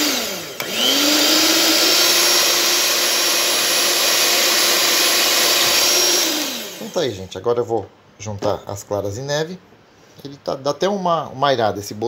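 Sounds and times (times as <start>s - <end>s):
stand mixer motor whine: 0.0s - 7.0s
mixer switch click: 0.6s - 0.8s.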